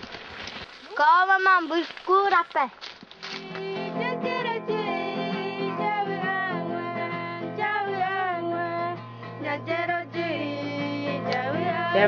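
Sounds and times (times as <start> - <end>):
acoustic guitar: 0.0 - 12.0
person singing: 3.4 - 12.0.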